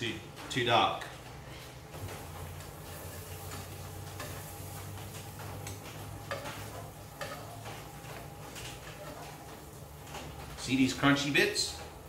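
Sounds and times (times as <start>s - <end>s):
cheese sizzling in a pan: 2.2s - 7.9s
metal fork scraping a pan: 6.3s - 7.6s.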